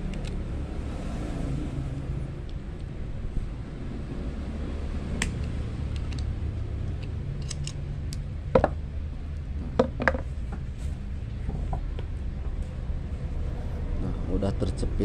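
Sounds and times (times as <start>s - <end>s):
road traffic rumble: 0.0s - 15.0s
pliers clicking on wire: 5.2s - 8.3s
pliers knocking on wooden plank: 8.5s - 8.8s, 9.7s - 10.2s.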